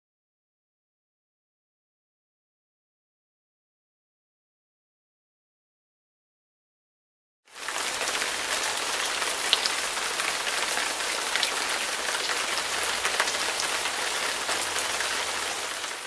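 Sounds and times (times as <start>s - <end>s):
rain on wet pavement: 7.5s - 16.0s.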